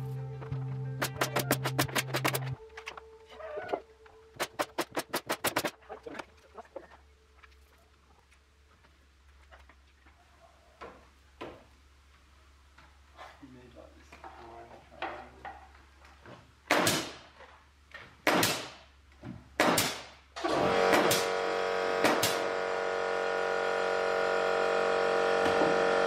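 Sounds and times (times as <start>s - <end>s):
music with held notes: 0.0s - 4.3s
nail gun shots: 4.4s - 5.7s, 16.7s - 17.2s, 18.2s - 18.8s, 19.6s - 21.4s, 22.0s - 22.5s.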